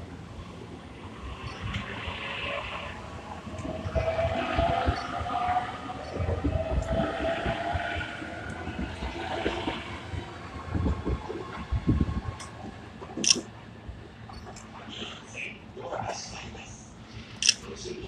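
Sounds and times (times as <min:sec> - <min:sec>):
electric train whine: 0:00.0 - 0:15.7
sharp click: 0:13.2 - 0:13.4, 0:17.4 - 0:17.6.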